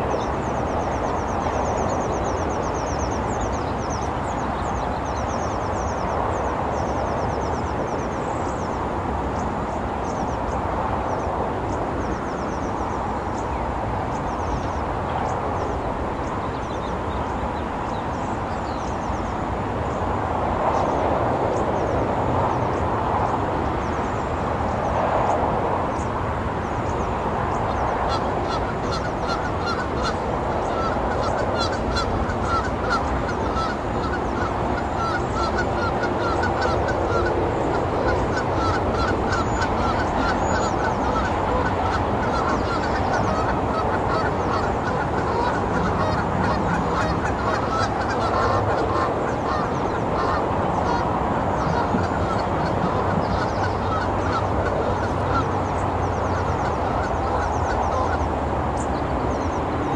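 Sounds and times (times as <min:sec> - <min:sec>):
birds calling rapidly: 0:00.0 - 0:59.9
cars driving by: 0:19.0 - 0:59.9.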